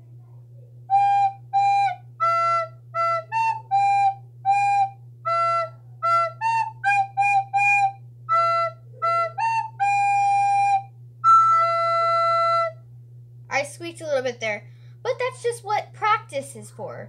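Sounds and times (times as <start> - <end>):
soprano recorder playing: 0.9 - 12.8.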